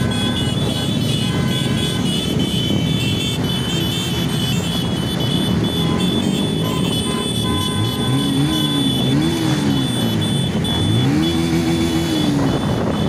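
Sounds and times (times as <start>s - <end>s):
motorcycle engines rumbling: 0.0s - 13.0s
wind noise on microphone: 12.0s - 13.0s.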